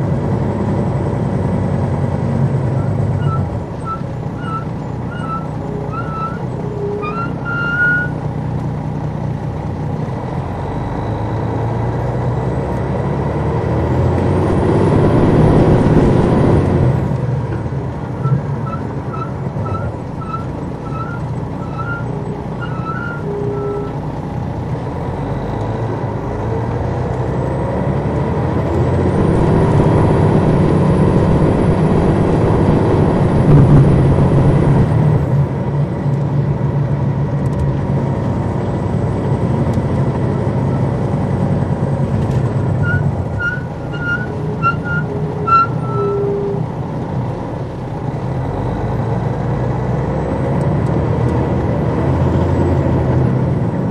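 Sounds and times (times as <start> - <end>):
coach diesel engine running: 0.0 - 53.9
high engine whistle: 2.8 - 8.2, 18.2 - 24.0, 42.8 - 46.8.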